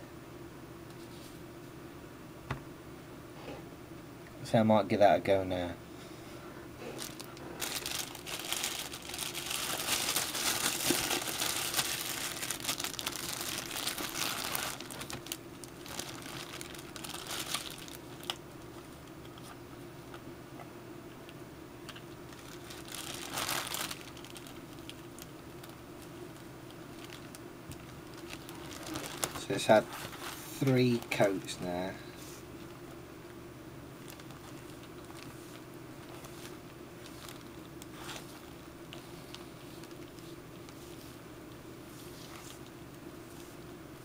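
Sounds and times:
plastic bag crinkling: 6.8 - 19.6, 21.9 - 31.6, 34.0 - 41.2, 41.9 - 42.7.

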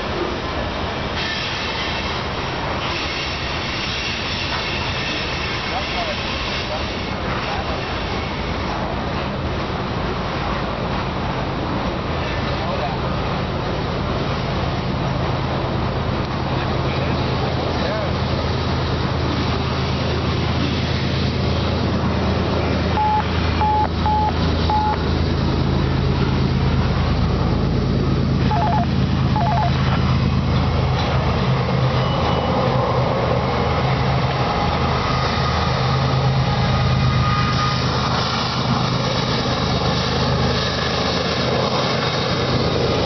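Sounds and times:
diesel locomotive drone: 0.0 - 43.0
train wheels on rails: 0.0 - 43.0
short high beeps: 23.0 - 25.0, 28.5 - 29.8.

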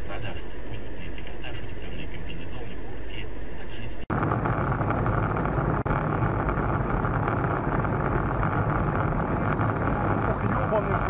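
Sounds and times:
car engine and road rumble: 4.1 - 11.0.

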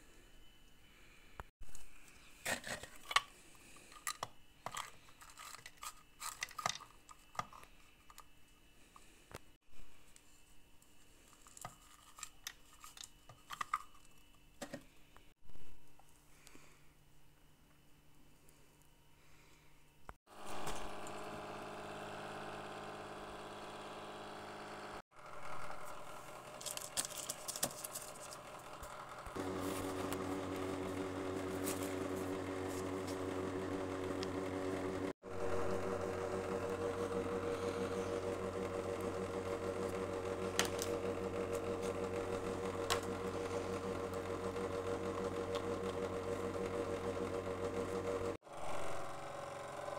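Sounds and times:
electric cooktop humming: 20.3 - 49.9.

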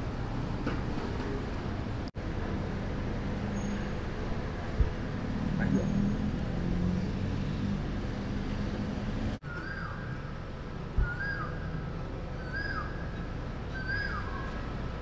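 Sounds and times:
city traffic hum: 0.0 - 15.0
bird whistling call: 11.0 - 11.6, 13.7 - 14.5.

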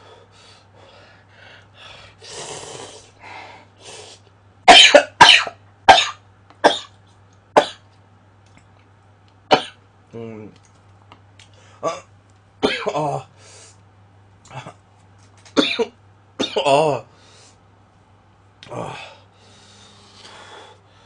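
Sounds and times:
person slurping noodles: 2.3 - 3.0.

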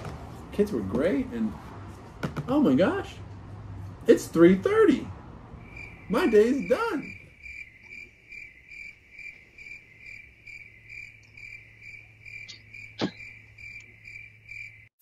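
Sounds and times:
cricket chirping: 5.6 - 15.0.

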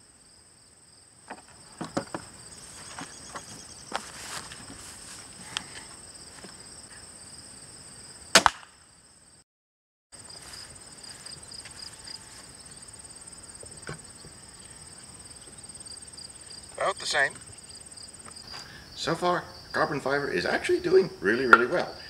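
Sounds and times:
insects chirring: 0.0 - 9.4, 10.2 - 22.0
crossbow shot crack: 8.3 - 8.9.

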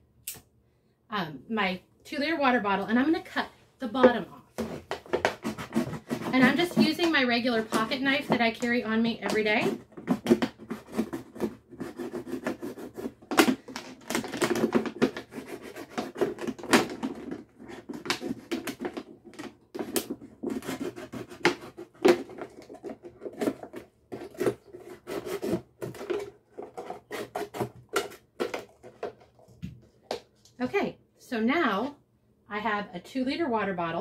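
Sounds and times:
knife sawing plastic bottle: 4.6 - 29.1
plastic crackling and crinkling: 12.4 - 30.6.

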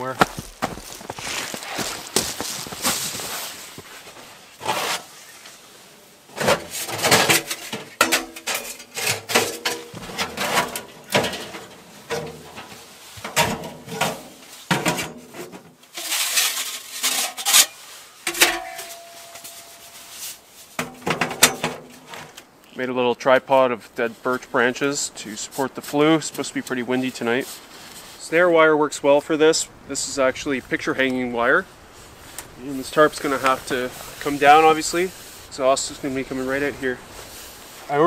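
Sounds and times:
foam sleeping pad rustling: 0.1 - 6.9, 17.7 - 20.8, 30.5 - 38.0
metal pipe ringing: 18.3 - 20.3.

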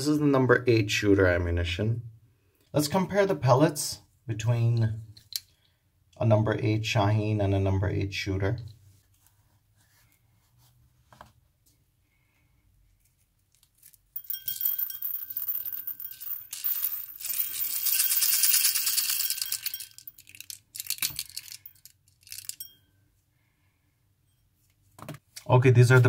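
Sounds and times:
pellets pouring into ceramic bowl: 14.2 - 22.6.

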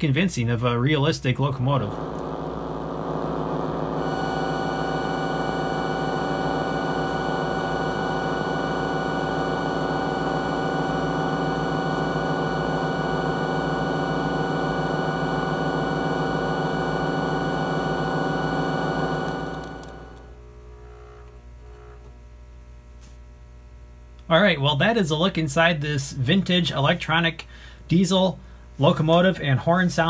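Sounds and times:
synthesized locomotive rumble: 1.5 - 20.4
steady whining tones: 1.5 - 22.1.

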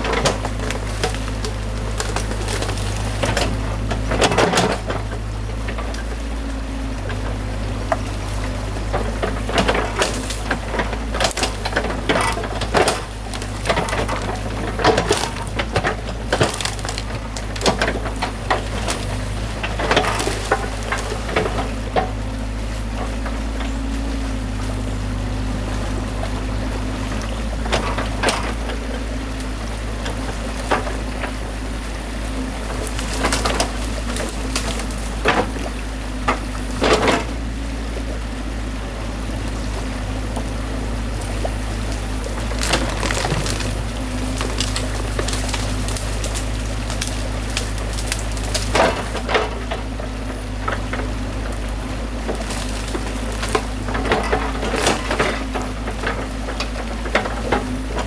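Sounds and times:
sticks snapping and clattering: 0.0 - 5.0, 8.0 - 22.1, 32.6 - 35.7, 41.9 - 49.8
excavator engine idling: 0.0 - 58.0.

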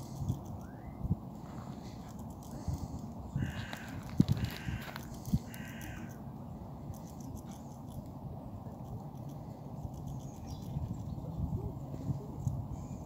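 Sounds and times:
low background rumble: 0.0 - 13.0
crow cawing: 3.4 - 6.2.

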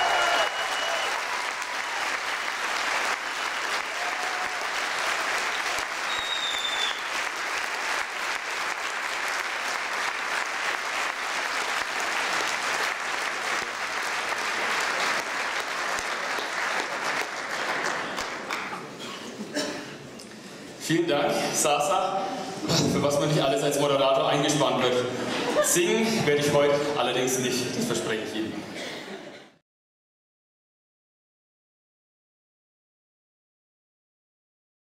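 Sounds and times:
large audience applauding: 0.0 - 19.0.

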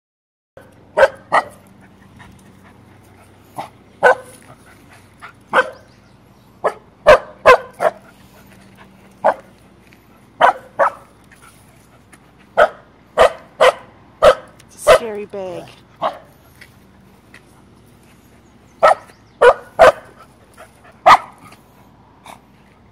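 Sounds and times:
dog barking sharply: 1.0 - 1.6, 4.0 - 4.3, 5.5 - 5.8, 6.6 - 8.0, 10.4 - 11.0, 12.6 - 15.1, 18.8 - 20.1, 21.0 - 21.4.

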